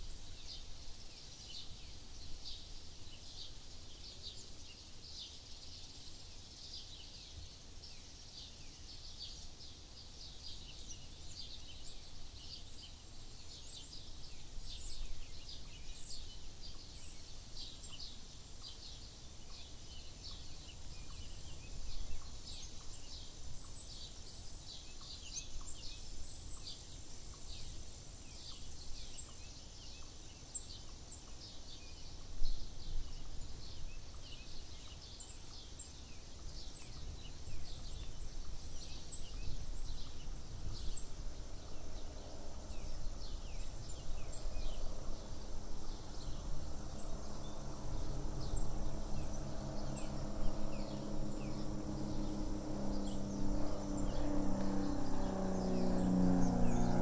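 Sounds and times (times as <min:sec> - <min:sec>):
birds chirping rapidly: 0:12.6 - 0:57.0
steady low rumble: 0:37.2 - 0:57.0.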